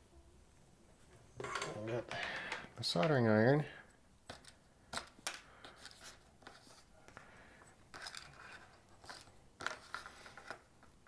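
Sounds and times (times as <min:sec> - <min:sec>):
hands handling wire: 0:04.2 - 0:11.0.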